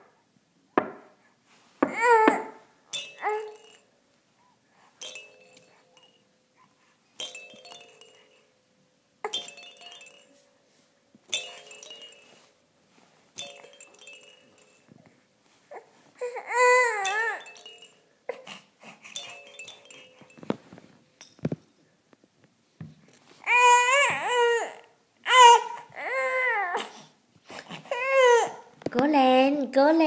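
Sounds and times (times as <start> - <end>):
baby crying: 1.9 - 2.6, 15.7 - 17.4, 23.4 - 27.0, 27.8 - 28.7
chiming toy notes: 11.3 - 12.5, 13.4 - 14.9, 16.7 - 18.2, 19.2 - 20.6.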